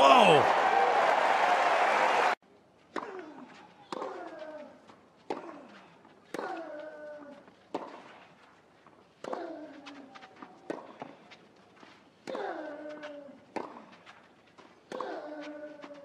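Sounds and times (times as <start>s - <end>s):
player grunting: 0.0s - 0.5s.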